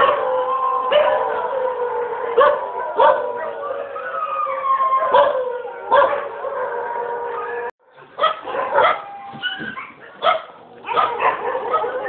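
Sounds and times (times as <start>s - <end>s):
dog howling: 0.0s - 7.8s, 8.5s - 9.9s, 10.8s - 12.0s
dog yipping and barking: 2.4s - 3.6s, 5.1s - 6.3s, 8.2s - 12.0s.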